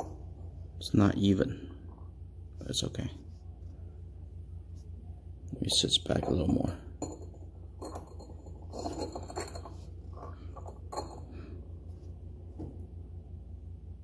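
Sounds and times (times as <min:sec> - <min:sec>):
steady low hum: 0:00.0 - 0:14.0
ceramic pieces clinking: 0:07.0 - 0:09.8.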